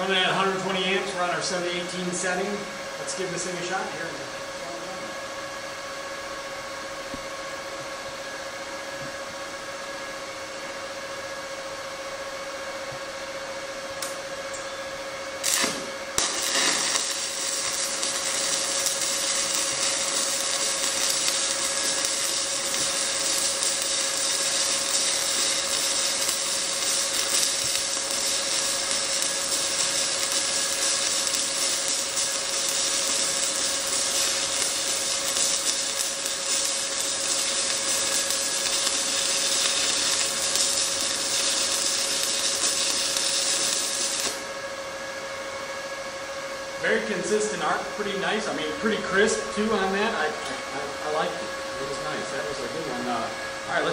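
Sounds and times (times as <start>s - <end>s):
welding arc crackling: 15.4s - 44.6s, 46.8s - 53.9s.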